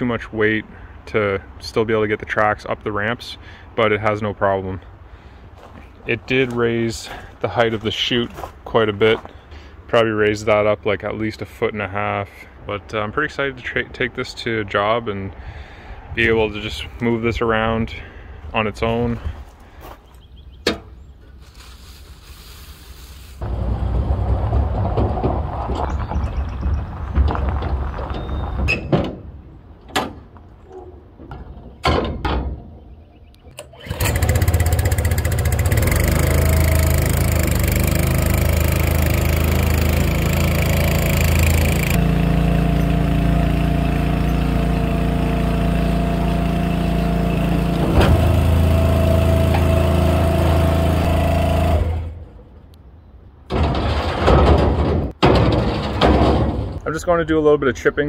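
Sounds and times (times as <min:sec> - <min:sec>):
knocks and clunks: 0:20.6 - 0:21.0, 0:23.4 - 0:32.9, 0:47.4 - 0:52.1, 0:53.4 - 0:57.1
wood chipper engine running: 0:23.4 - 0:25.4, 0:33.7 - 0:52.3.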